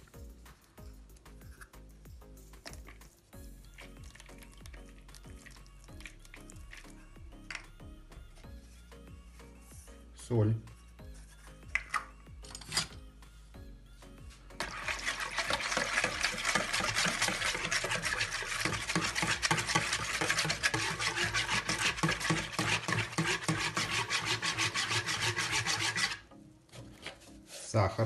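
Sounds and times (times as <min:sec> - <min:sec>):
whisk beating liquid in bowl: 0:14.6 - 0:26.2.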